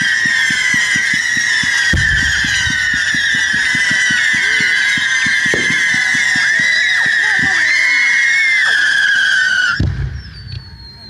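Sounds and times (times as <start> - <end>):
firework boom: 0.0 - 7.6, 9.8 - 11.0.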